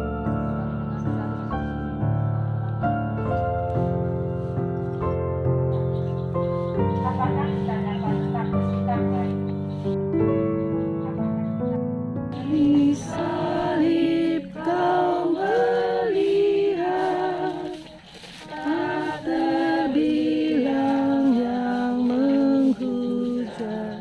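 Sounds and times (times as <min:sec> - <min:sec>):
group singing a hymn: 0:12.4 - 0:24.0.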